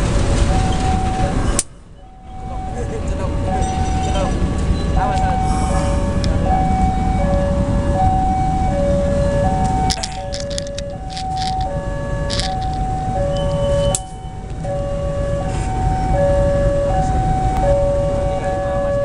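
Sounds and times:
diesel locomotive rumble: 0.0 - 19.0
level crossing alarm two tones: 2.0 - 19.0
train wheels clicking: 9.6 - 14.6.

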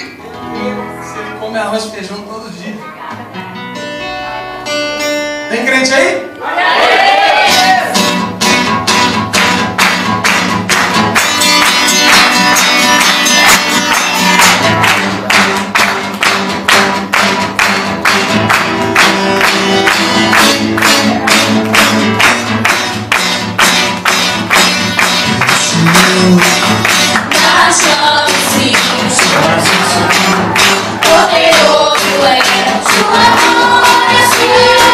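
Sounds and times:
acoustic guitar chords: 0.0 - 6.4, 7.4 - 34.9
congregation clapping: 7.6 - 34.9.

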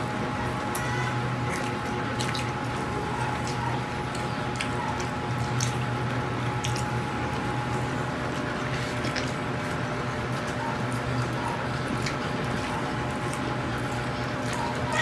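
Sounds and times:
wet chewing and smacking: 0.0 - 15.0.

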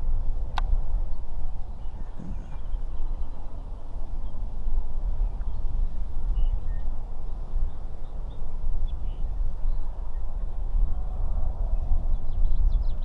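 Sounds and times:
wind buffeting microphone: 0.0 - 13.0
faint bird chirps: 1.8 - 3.4.

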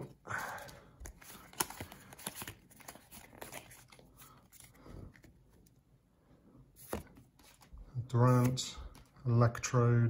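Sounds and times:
trading cards shuffled: 0.0 - 5.8, 6.8 - 7.7, 8.3 - 9.2
card sliding and rustling: 1.0 - 5.6, 6.8 - 7.7.

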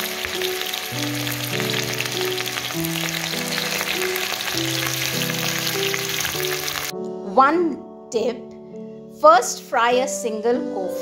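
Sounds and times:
food deep-frying in oil: 0.0 - 6.9
background music low notes: 0.0 - 11.0.

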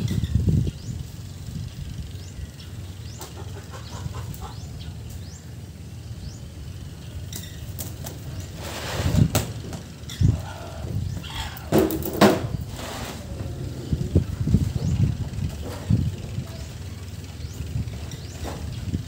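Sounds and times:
low background rumble: 0.0 - 19.0
rustle: 7.1 - 14.7.

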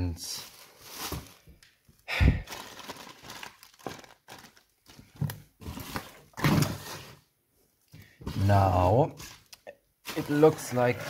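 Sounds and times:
cardboard and plastic crinkling: 0.4 - 1.7, 2.4 - 7.2, 9.2 - 11.0.

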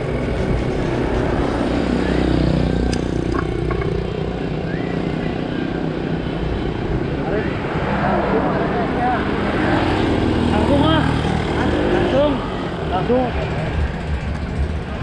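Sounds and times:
motorcycle engine running: 0.0 - 4.5, 10.4 - 15.0
road and wind noise: 0.0 - 15.0.

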